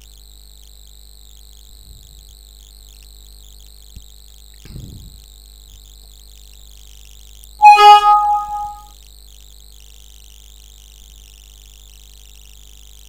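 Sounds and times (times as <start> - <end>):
computer alert chime: 7.6 - 8.9.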